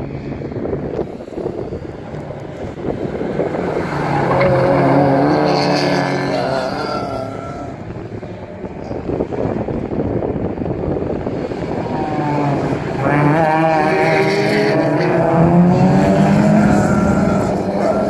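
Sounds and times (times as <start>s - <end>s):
racing car engines passing: 0.0s - 18.0s.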